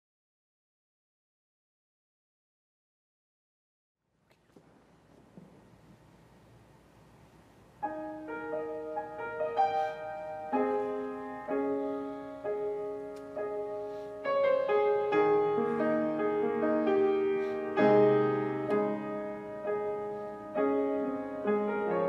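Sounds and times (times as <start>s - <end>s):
solo piano: 7.7s - 22.0s.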